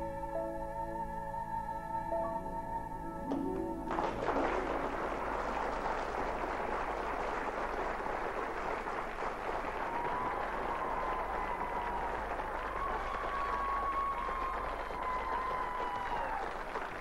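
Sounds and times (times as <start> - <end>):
piano music: 0.0 - 5.4
crowd noise: 3.3 - 17.0.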